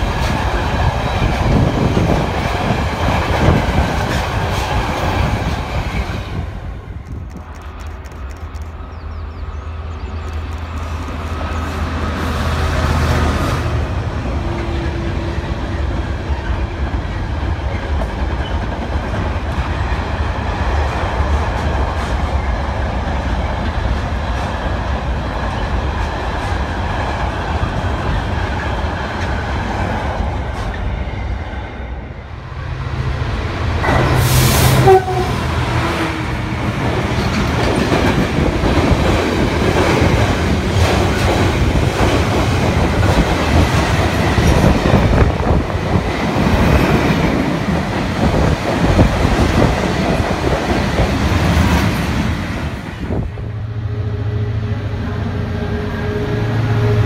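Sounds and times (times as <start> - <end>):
freight train wagons rumbling: 0.0 - 57.0
train horn blast: 33.8 - 36.3, 53.4 - 57.0.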